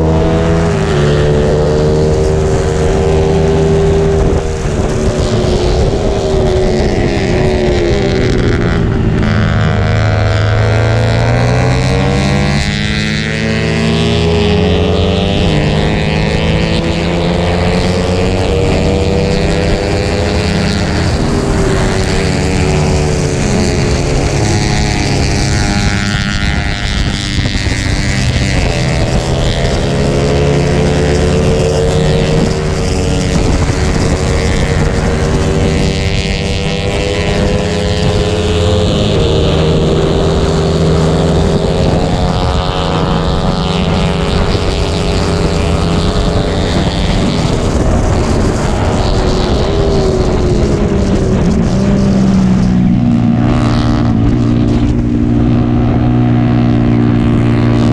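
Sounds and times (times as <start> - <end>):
motorcycle engine revving: 0.0 - 57.9
wind rushing over microphone: 0.0 - 57.9.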